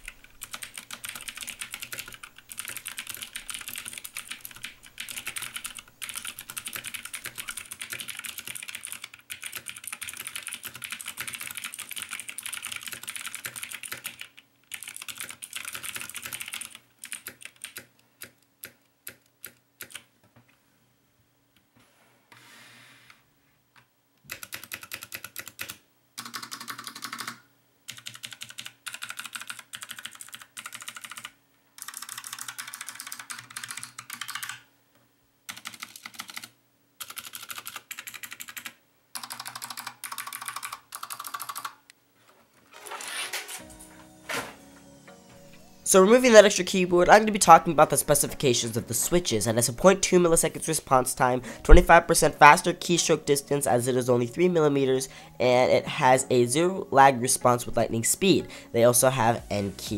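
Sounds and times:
mechanical keyboard typing: 0:00.0 - 0:20.1, 0:24.3 - 0:34.7, 0:35.5 - 0:41.8.

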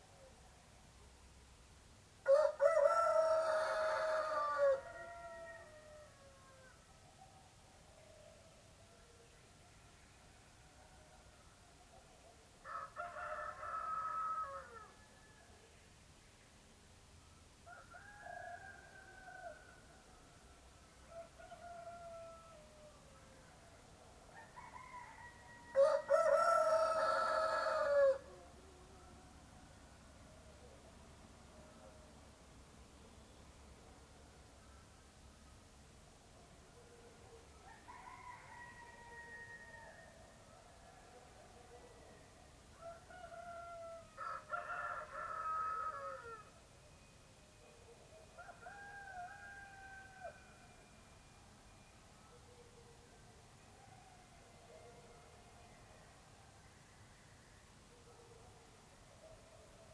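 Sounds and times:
roosters crowing: 0:02.3 - 0:06.8, 0:12.6 - 0:15.1, 0:24.4 - 0:28.3, 0:37.6 - 0:40.2, 0:42.8 - 0:46.6, 0:48.4 - 0:50.8.

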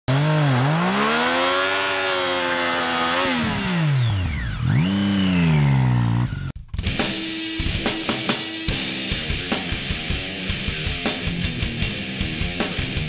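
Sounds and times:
motorcycle engine revving: 0:00.0 - 0:06.6.

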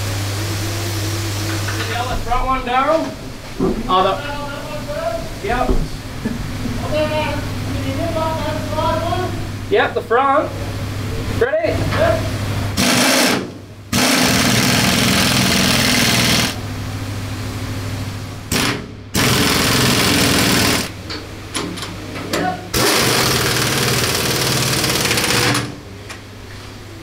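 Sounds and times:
pneumatic impact wrench hammering: 0:12.8 - 0:16.6, 0:18.5 - 0:20.9, 0:22.7 - 0:25.8.

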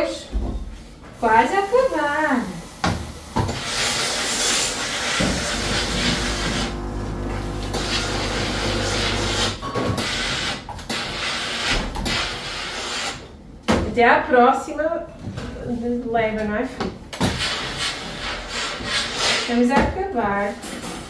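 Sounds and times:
steam iron hissing: 0:02.3 - 0:09.6
low hum: 0:05.4 - 0:09.5.

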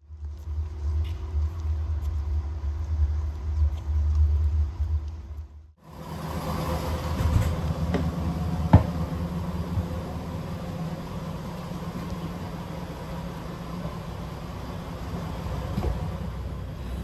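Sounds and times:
diesel engine idling: 0:05.8 - 0:17.0.

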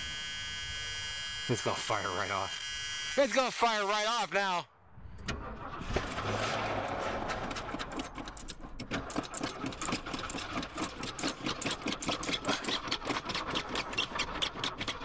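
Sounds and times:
engine cranking on starter: 0:05.0 - 0:15.0.

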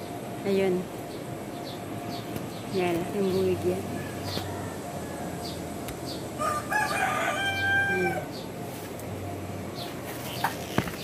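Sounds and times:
rooster crowing: 0:03.9 - 0:05.8, 0:06.4 - 0:08.4.

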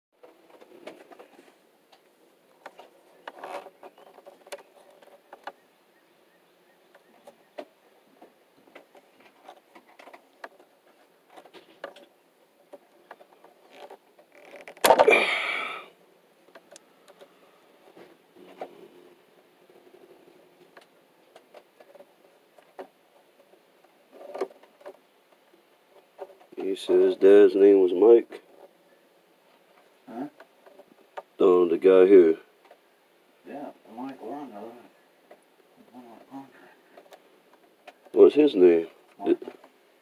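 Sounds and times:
wire strippers clicking and rustling: 0:00.2 - 0:05.6, 0:06.9 - 0:15.8, 0:16.4 - 0:19.0, 0:19.7 - 0:27.0, 0:29.5 - 0:31.4, 0:35.2 - 0:39.8.

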